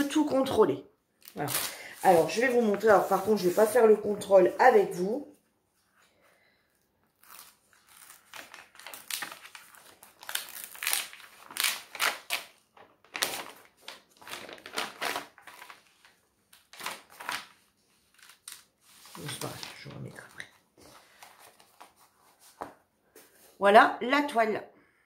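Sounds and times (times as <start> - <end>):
stiff paper and canvas crinkling: 7.1 - 22.8.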